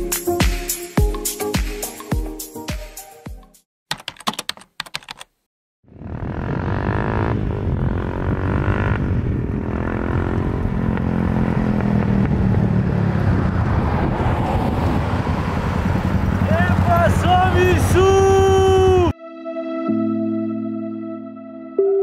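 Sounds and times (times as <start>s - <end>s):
motorcycle engine approaching: 5.8s - 19.1s.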